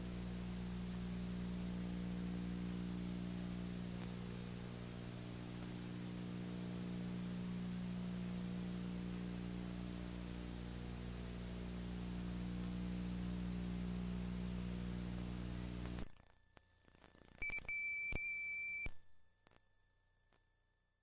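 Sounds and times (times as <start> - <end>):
electrical hum with hiss: 0.0 - 17.8
clicks: 3.9 - 4.2.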